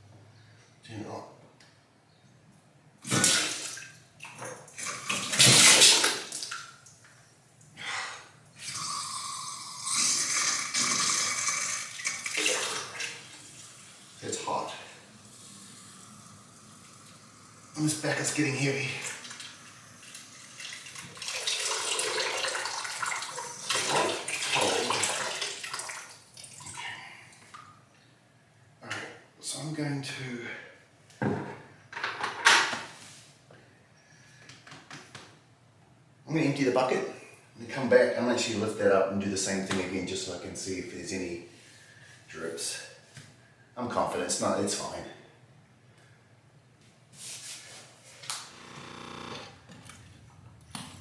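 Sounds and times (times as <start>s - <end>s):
water pouring into a plastic bucket: 9.8s - 13.3s, 18.9s - 26.8s.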